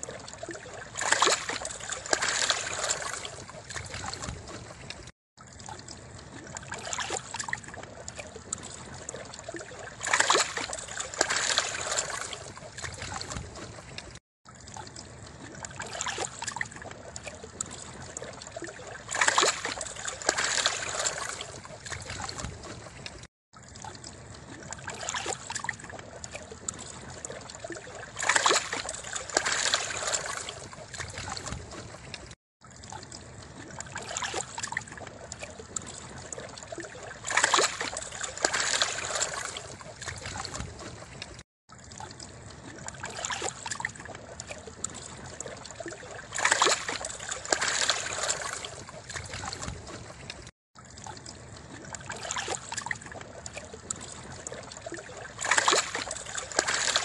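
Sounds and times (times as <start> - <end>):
small waves lapping at shore: 0.0 - 57.0.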